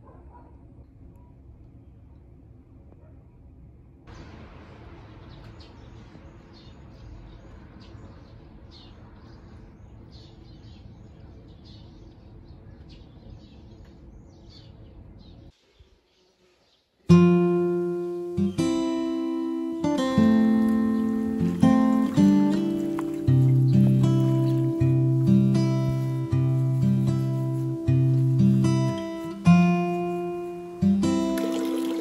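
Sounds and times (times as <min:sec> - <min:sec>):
low outdoor rumble: 0:00.0 - 0:15.6, 0:17.4 - 0:31.4
acoustic guitar music: 0:17.1 - 0:32.0.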